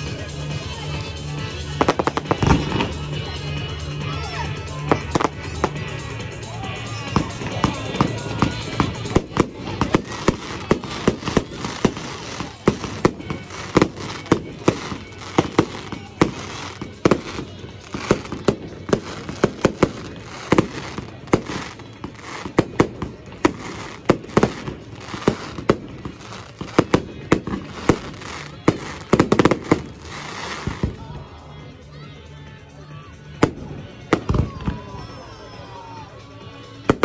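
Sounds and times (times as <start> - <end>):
fireworks bursting: 1.6 - 3.1, 6.9 - 31.0.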